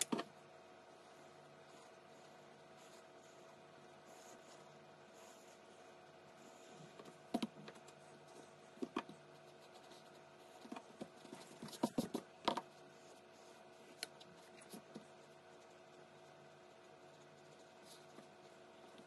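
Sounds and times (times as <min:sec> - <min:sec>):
faint steady hum: 0:00.0 - 0:19.0
pencil tapping on paper: 0:10.6 - 0:12.6.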